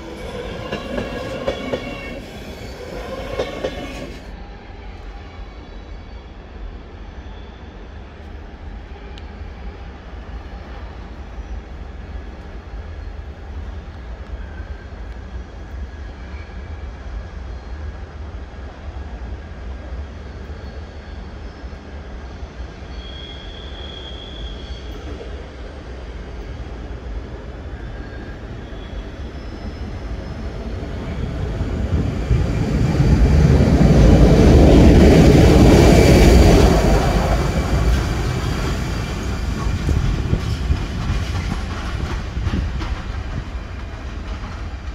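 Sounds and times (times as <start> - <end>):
faint high squeal: 0.0 - 9.8, 22.6 - 25.4, 27.5 - 31.6
train rumbling over tracks: 0.0 - 44.9.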